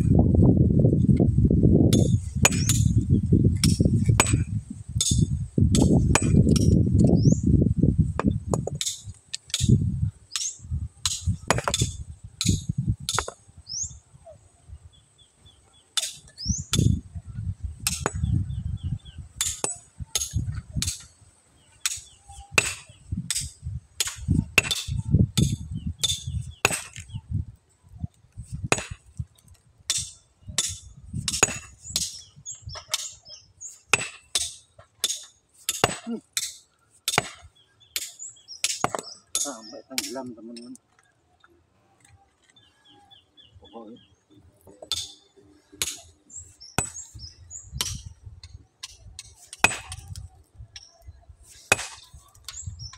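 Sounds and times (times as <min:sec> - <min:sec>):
hammer striking stone: 0:03.6 - 0:04.4, 0:05.0 - 0:06.7, 0:10.4 - 0:13.4, 0:21.8 - 0:27.0, 0:28.7 - 0:29.0, 0:29.9 - 0:32.2, 0:33.9 - 0:40.1, 0:46.8 - 0:47.1, 0:49.5 - 0:50.2.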